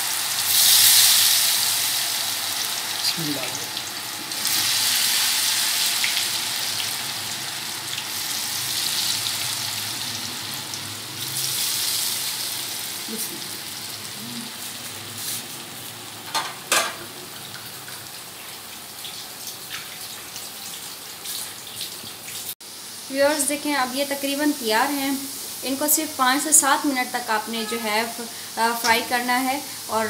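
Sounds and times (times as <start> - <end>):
food deep-frying in oil: 0.0 - 30.0.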